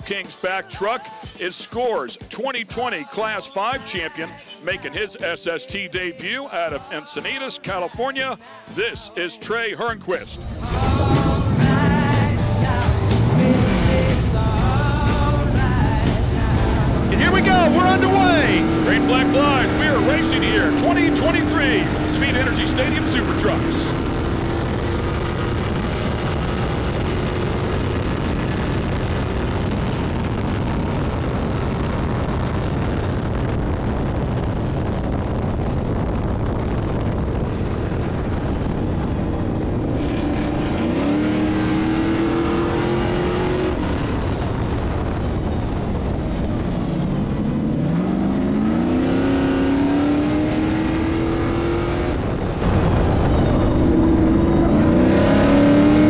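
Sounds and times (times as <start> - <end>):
race truck engines accelerating: 10.4 - 33.2, 37.1 - 56.0.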